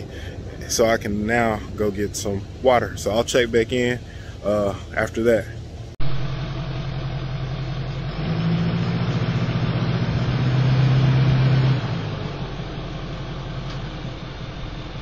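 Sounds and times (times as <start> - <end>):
vehicle engine running: 0.0 - 15.0.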